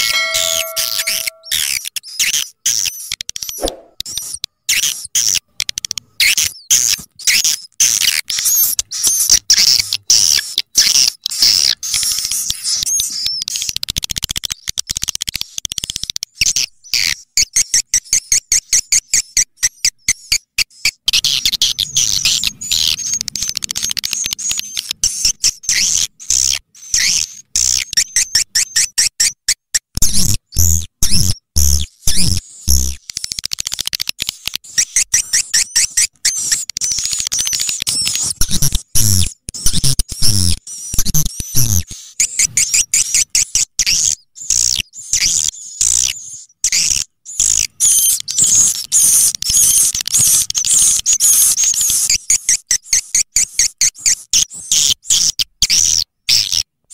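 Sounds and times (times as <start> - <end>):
swiftlet chirps and twitters: 0.0 - 4.8.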